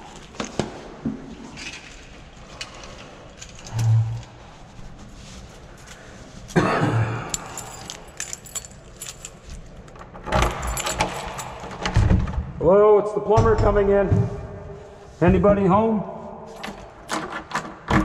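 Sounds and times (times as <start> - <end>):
keys jangling: 1.6 - 4.4, 7.1 - 11.9, 16.5 - 17.4.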